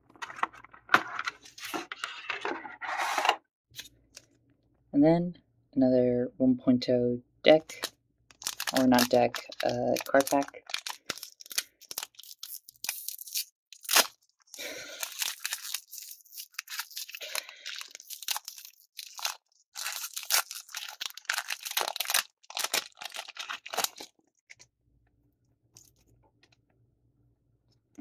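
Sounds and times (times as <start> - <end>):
foil wrapper tearing and crumpling: 7.7 - 24.6.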